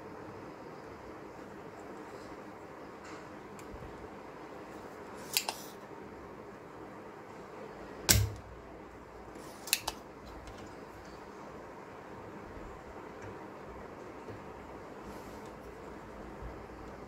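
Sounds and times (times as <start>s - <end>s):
desoldering pump clicks: 5.3s - 5.6s, 9.6s - 10.7s
desoldering pump plunger snap: 5.3s - 5.6s, 8.1s - 8.5s, 9.6s - 10.0s.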